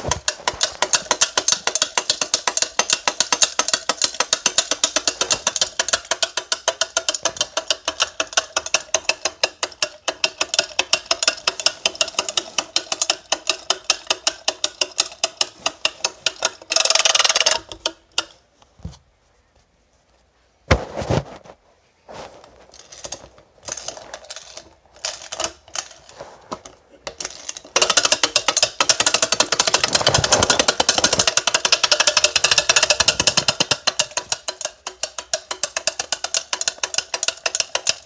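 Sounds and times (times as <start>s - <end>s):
wind-up toy clockwork clicking: 0.2s - 18.3s, 22.8s - 26.1s, 27.0s - 38.0s
handling rustle: 18.5s - 28.3s.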